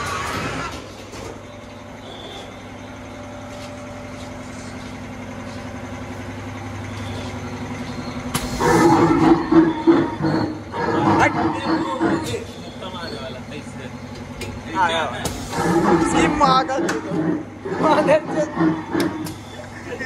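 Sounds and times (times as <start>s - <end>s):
steady low hum: 0.0s - 20.0s
loud harsh sound: 8.3s - 13.0s, 15.2s - 19.8s.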